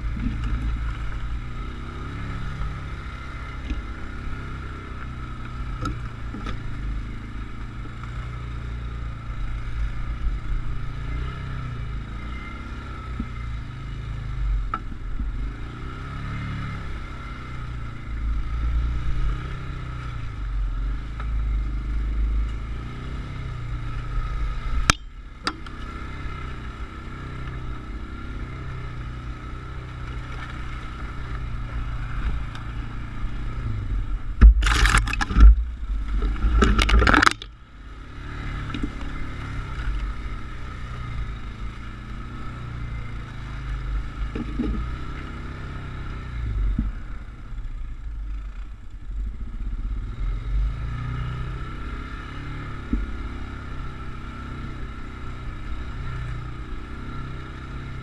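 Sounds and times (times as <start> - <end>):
motorcycle engine revving: 0.0 - 58.0
knocks and rattles: 34.4 - 35.7, 36.3 - 37.5.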